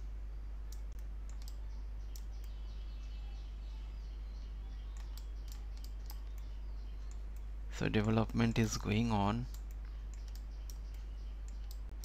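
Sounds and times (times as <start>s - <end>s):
low electrical hum: 0.0s - 12.0s
faint high chirps: 0.3s - 7.5s, 9.5s - 12.0s
computer mouse clicking: 0.7s - 2.6s, 4.9s - 8.5s, 9.5s - 12.0s.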